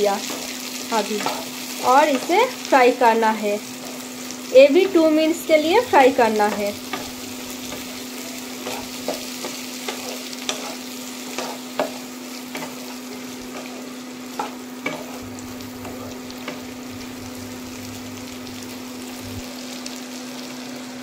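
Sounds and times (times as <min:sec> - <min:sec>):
vegetables sizzling in oil: 0:00.0 - 0:21.0
spatula scraping and tapping pan: 0:06.3 - 0:16.7.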